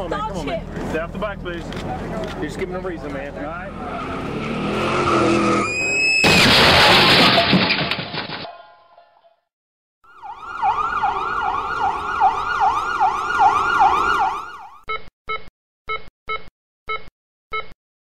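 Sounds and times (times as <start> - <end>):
electronic siren yelping: 5.0 - 6.2, 10.1 - 14.8.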